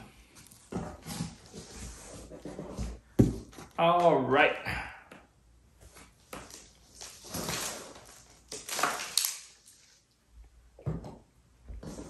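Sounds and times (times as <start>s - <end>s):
cardboard scraping and rustling: 0.4s - 3.7s, 6.4s - 8.3s.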